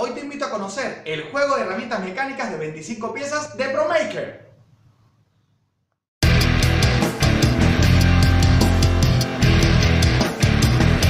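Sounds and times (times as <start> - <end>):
driving drum beat: 6.2 - 11.0
electric guitar: 6.2 - 11.0
hard rock music: 6.2 - 11.0.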